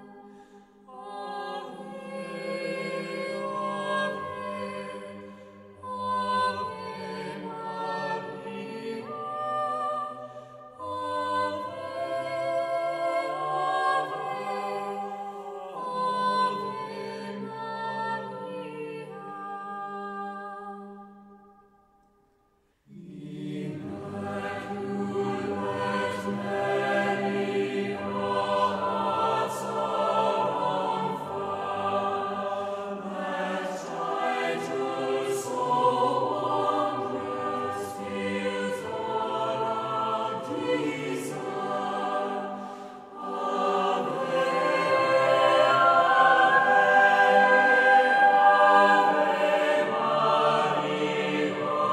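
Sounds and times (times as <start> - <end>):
choir singing: 0.0 - 21.5, 22.8 - 51.9.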